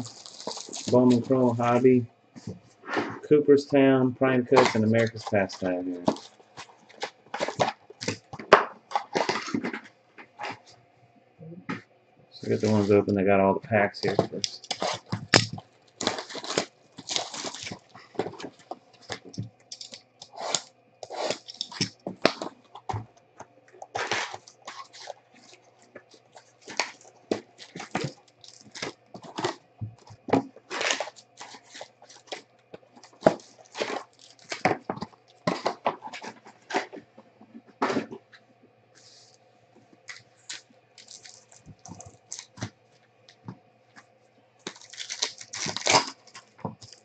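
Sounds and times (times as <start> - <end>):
foil packs crinkling: 0.0 - 2.5, 4.2 - 10.8, 12.4 - 13.1, 13.8 - 23.1, 23.7 - 38.2, 40.0 - 43.5, 44.6 - 47.0
cardboard scraping: 0.0 - 3.3, 4.4 - 10.8, 13.9 - 23.1, 23.8 - 38.4.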